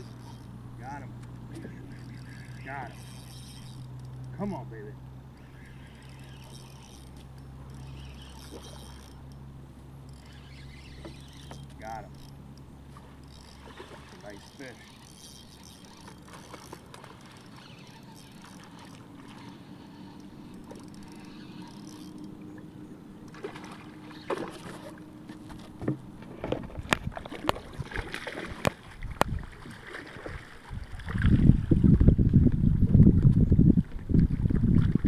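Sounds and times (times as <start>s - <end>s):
fish splashing and thrashing in water: 12.9s - 14.3s, 14.9s - 19.8s, 23.3s - 31.8s.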